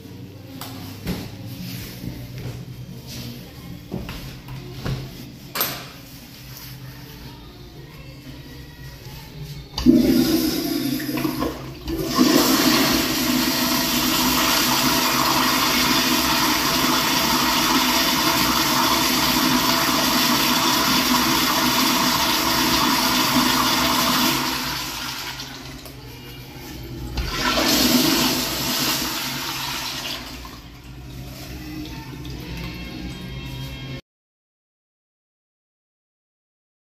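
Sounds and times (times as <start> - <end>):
toilet flushing: 9.8 - 26.0, 27.1 - 33.1.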